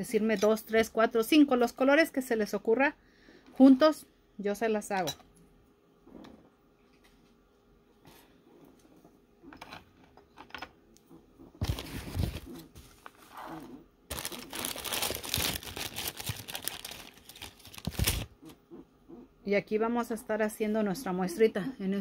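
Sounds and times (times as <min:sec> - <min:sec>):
paper towel rustling and crinkling: 0:11.6 - 0:13.4, 0:14.1 - 0:18.4.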